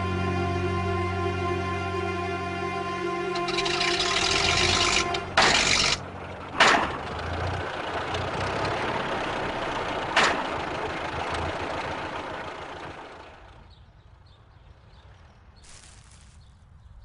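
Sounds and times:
cartoon car engine running: 3.2 - 13.8.

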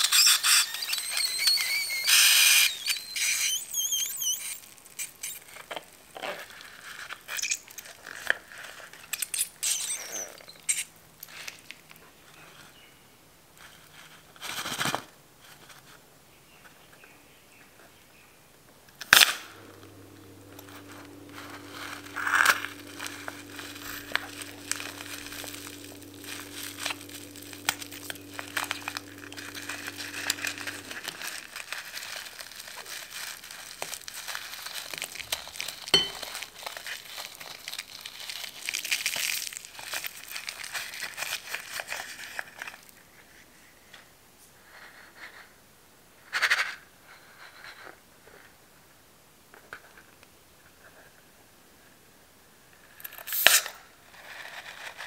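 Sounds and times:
balloon rubber crinkling and squishing: 0.0 - 6.0, 9.6 - 10.8, 21.1 - 42.0.

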